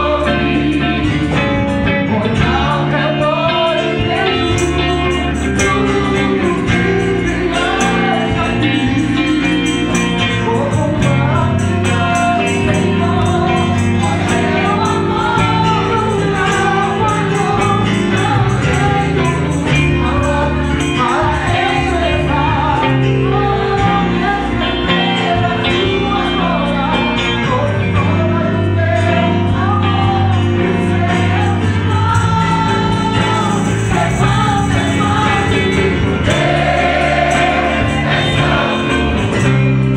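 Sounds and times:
man singing into a microphone: 0:00.0 - 0:39.7
band accompaniment with percussion: 0:00.0 - 0:39.9
gospel choir singing: 0:00.0 - 0:39.9.

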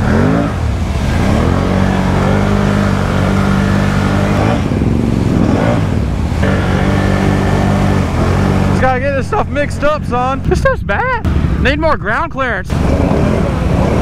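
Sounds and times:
mud and water spraying: 0:00.0 - 0:10.5, 0:12.7 - 0:14.0
atv engine revving: 0:00.0 - 0:11.8, 0:12.7 - 0:14.0.

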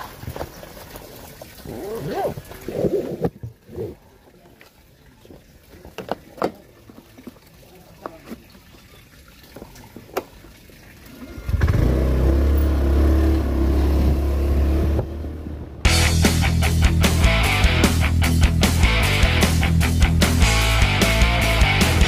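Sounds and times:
motor scooter engine: 0:11.5 - 0:15.6.

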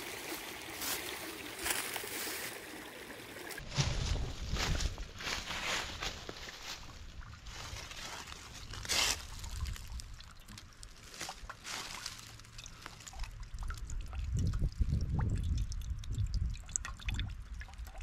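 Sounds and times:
water dripping into metal pot: 0:09.4 - 0:11.6, 0:12.4 - 0:18.0.

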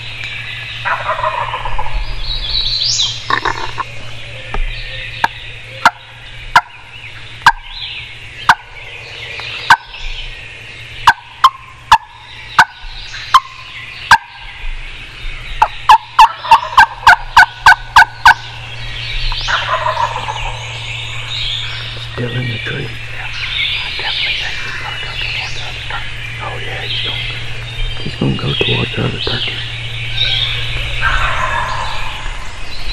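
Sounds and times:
turkey yelping: 0:00.8 - 0:01.9, 0:05.8 - 0:07.8, 0:08.4 - 0:08.8, 0:09.6 - 0:10.0, 0:11.0 - 0:14.6, 0:15.6 - 0:21.8, 0:30.1 - 0:32.4.

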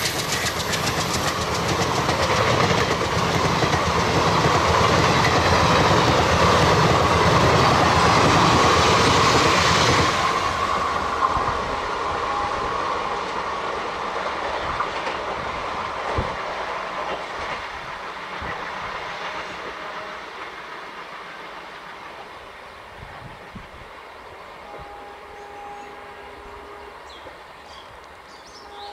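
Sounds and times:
train coaches rushing past: 0:00.0 - 0:28.9.

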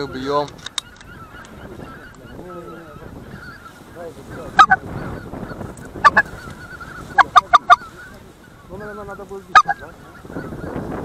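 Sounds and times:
geese yelping: 0:00.0 - 0:11.0
loud close goose honk: 0:01.3 - 0:08.2, 0:09.5 - 0:10.7.

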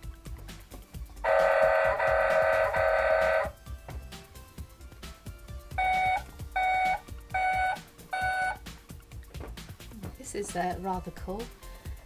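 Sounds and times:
toy truck electronic beeps: 0:01.3 - 0:03.5, 0:05.8 - 0:08.6.

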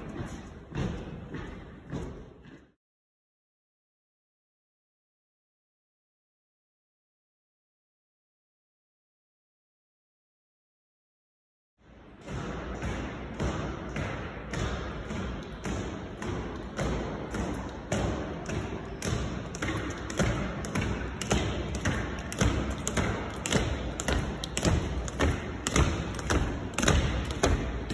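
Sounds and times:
boots marching on stone floor: 0:19.4 - 0:27.9.

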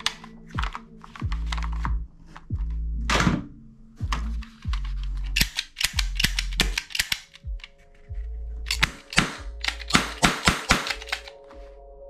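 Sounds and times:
background music: 0:00.0 - 0:12.0
toy gun trigger clicking: 0:05.3 - 0:07.4, 0:08.7 - 0:11.4.

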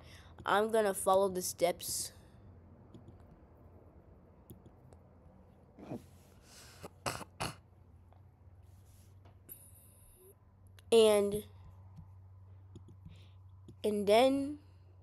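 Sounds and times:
person clearing throat: 0:06.8 - 0:07.6.

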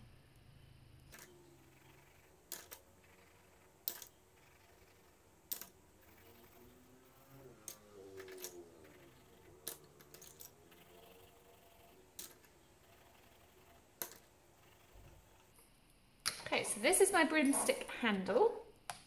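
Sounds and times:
wooden pencils clicking together: 0:02.2 - 0:06.7, 0:07.6 - 0:12.5, 0:14.0 - 0:14.3.

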